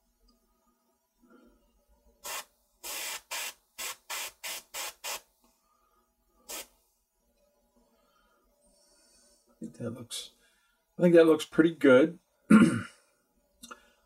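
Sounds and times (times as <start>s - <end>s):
airbrush spraying in hissing bursts: 2.2s - 5.3s, 6.5s - 6.8s.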